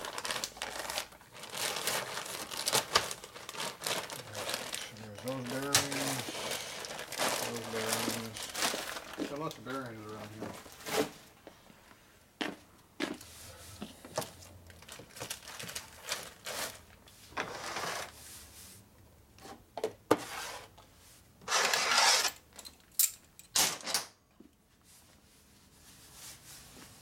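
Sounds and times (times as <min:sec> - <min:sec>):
packaging rustling: 0:00.0 - 0:11.2, 0:14.7 - 0:17.0
metal parts clinking on workbench: 0:21.9 - 0:24.0.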